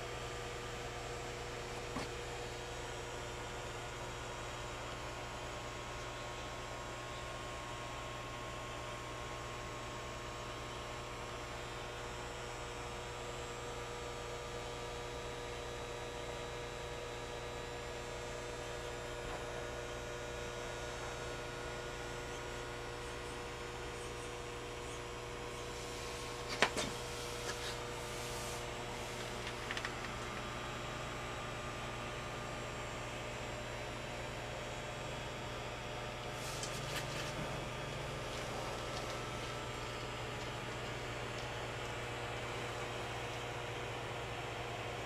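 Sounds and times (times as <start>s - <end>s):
electrical mains hum: 0.0s - 45.0s
sharp clicks and rustles: 29.2s - 30.5s.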